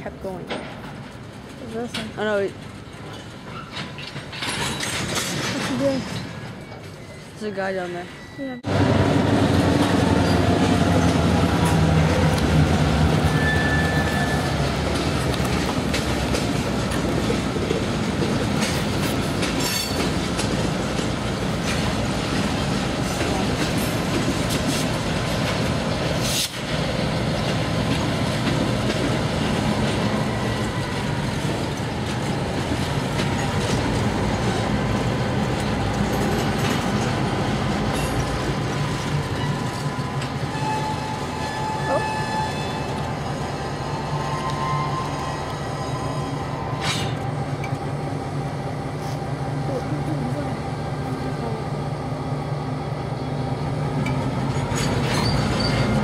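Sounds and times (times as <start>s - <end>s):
diesel locomotive drone: 0.0s - 56.0s
train wheels rumbling on rail: 0.0s - 56.0s
wheel squeal: 5.8s - 8.6s, 13.3s - 14.6s, 38.9s - 43.0s, 54.7s - 56.0s.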